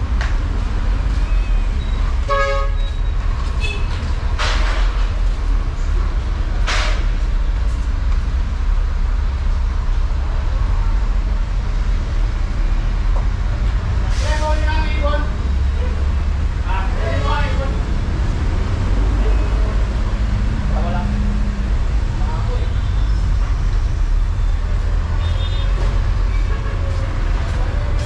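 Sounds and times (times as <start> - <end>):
street traffic rumble: 0.0 - 28.0
vehicle horn toot: 2.3 - 2.9, 3.6 - 4.0, 25.2 - 26.8.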